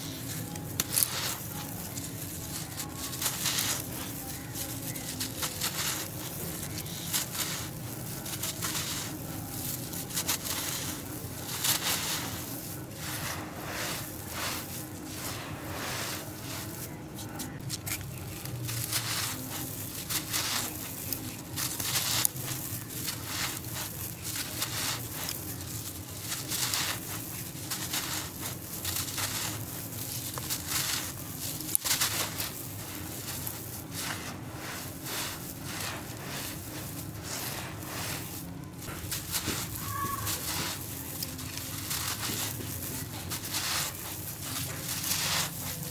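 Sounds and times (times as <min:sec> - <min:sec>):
hands crumbling gritty soil: 0:00.0 - 0:45.9.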